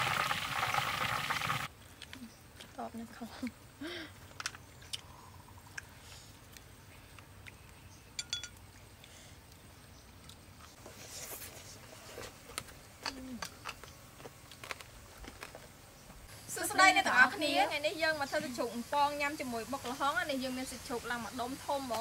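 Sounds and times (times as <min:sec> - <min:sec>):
fried pork crackling: 0:00.0 - 0:01.7.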